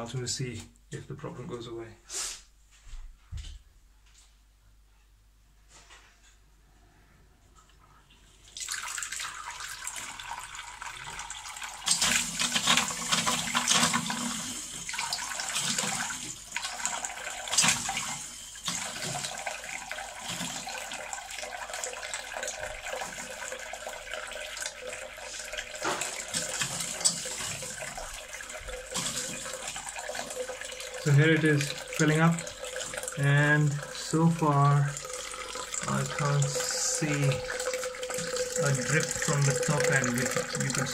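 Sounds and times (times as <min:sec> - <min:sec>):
water hissing into toilet cistern: 0:08.2 - 0:40.9.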